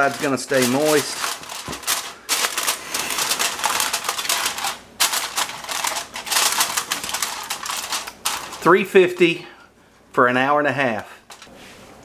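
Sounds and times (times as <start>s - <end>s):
aluminium foil crinkling: 0.0s - 9.3s.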